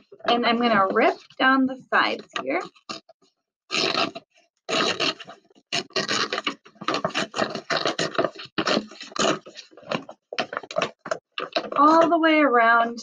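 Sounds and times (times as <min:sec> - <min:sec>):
paper bag tearing: 0:03.7 - 0:11.8.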